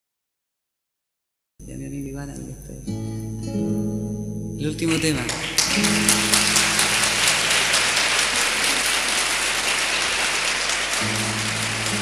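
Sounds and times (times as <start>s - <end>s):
acoustic guitar ringing: 1.6s - 12.0s
audience applauding: 4.8s - 12.0s.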